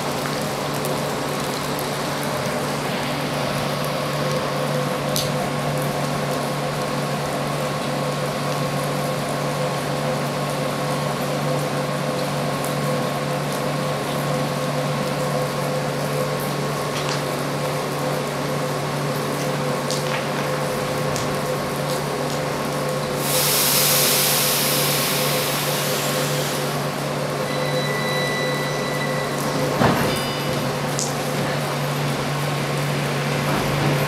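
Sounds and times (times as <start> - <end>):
train machinery humming: 0.0 - 34.0
loud hiss: 23.2 - 26.9.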